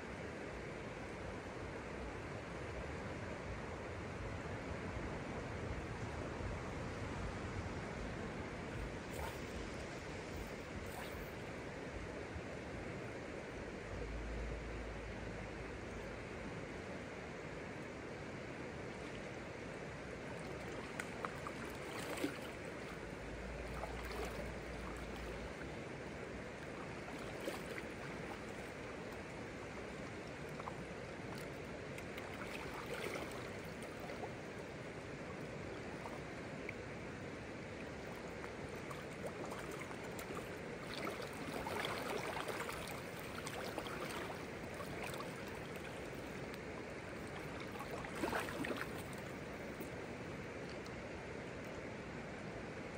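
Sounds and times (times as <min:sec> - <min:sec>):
river water rushing: 0:19.0 - 0:51.4
light splashes: 0:20.3 - 0:25.8, 0:26.5 - 0:34.4, 0:37.8 - 0:51.0.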